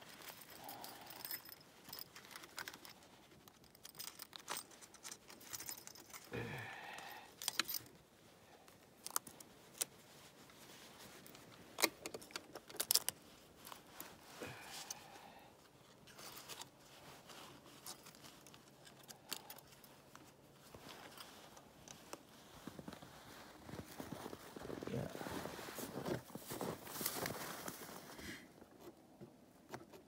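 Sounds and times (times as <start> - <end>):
metallic jingling: 0.0 - 6.3
wire clicking and scraping: 0.1 - 6.3, 8.7 - 10.0, 11.1 - 15.0.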